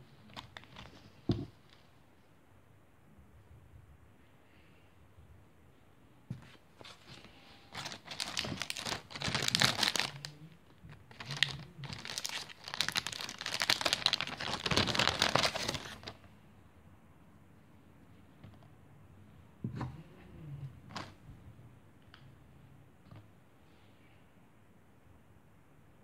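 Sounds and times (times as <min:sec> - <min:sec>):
plastic bags crinkling: 0:00.3 - 0:01.2, 0:06.9 - 0:16.2.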